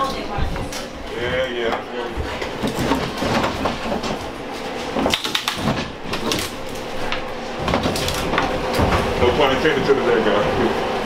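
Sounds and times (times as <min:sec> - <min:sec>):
wooden boards creaking: 0:02.4 - 0:06.8.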